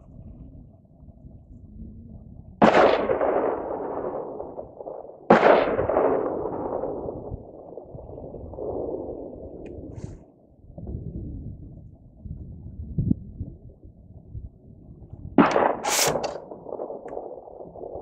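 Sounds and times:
gunshots with rolling echo: 0:02.6 - 0:10.0, 0:15.4 - 0:18.0.

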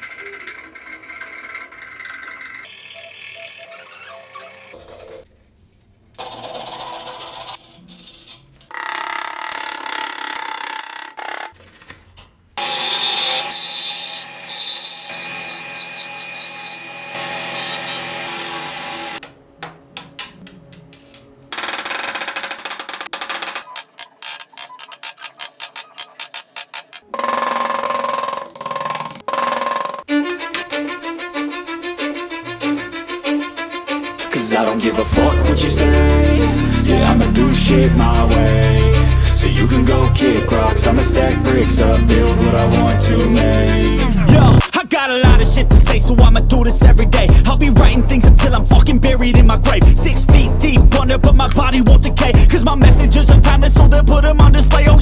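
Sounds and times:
carving gouge cutting wood: 0:00.0 - 0:02.9, 0:06.2 - 0:11.8, 0:12.6 - 0:19.2, 0:21.6 - 0:31.2
chisel cutting spinning wood: 0:00.0 - 0:03.2, 0:12.6 - 0:19.2, 0:21.6 - 0:30.8
wood lathe running: 0:00.0 - 0:04.8, 0:12.6 - 0:19.2, 0:21.6 - 0:31.2
file rasping wood: 0:23.5 - 0:30.1.

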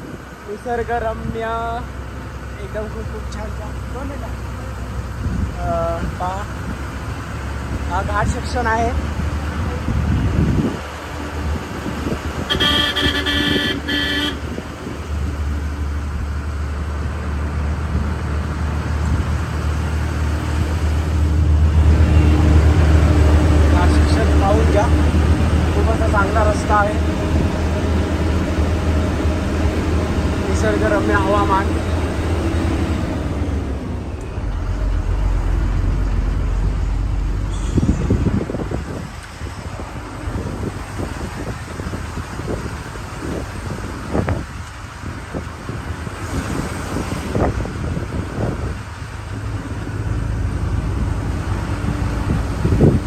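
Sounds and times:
vehicle engine rumble: 0:00.0 - 0:53.0
vehicle horn honking: 0:12.5 - 0:14.5.

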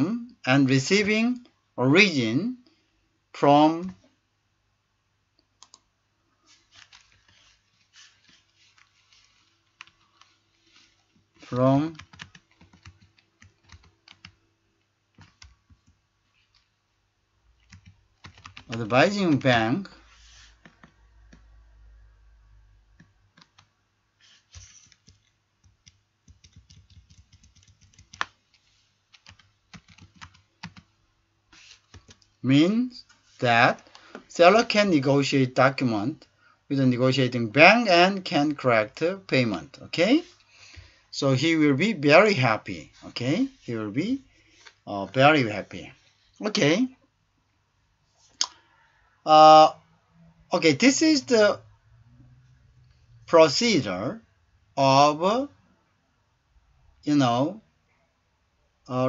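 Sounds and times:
typing on computer keyboard: 0:09.7 - 0:10.4, 0:11.9 - 0:14.4, 0:15.2 - 0:16.0, 0:17.6 - 0:19.4, 0:23.0 - 0:23.7, 0:24.3 - 0:28.4, 0:29.1 - 0:30.9, 0:31.8 - 0:32.3.

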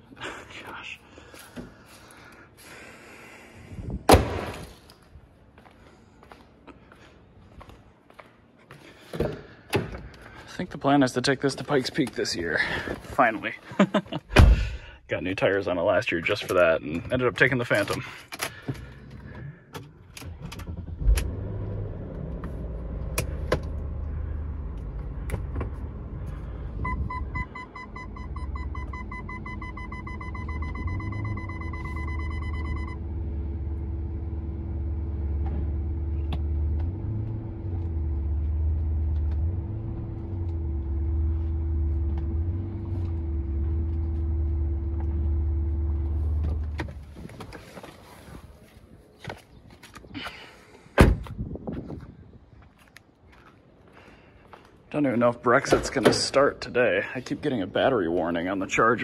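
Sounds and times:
electronic warning chime: 0:26.8 - 0:33.0.

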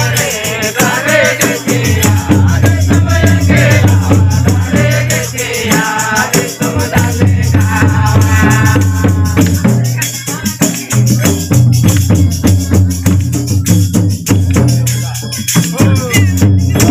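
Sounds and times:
person singing devotional song: 0:00.0 - 0:11.7
steady percussion beat: 0:00.0 - 0:16.9.

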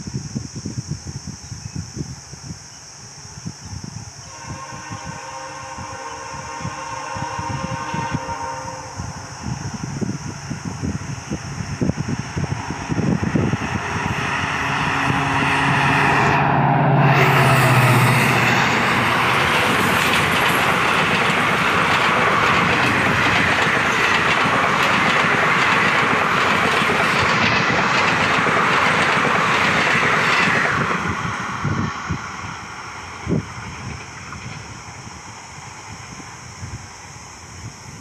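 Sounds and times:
diesel locomotive engine passing: 0:04.2 - 0:38.0
train wheels clacking over rail joints: 0:17.5 - 0:31.4, 0:33.3 - 0:34.9.

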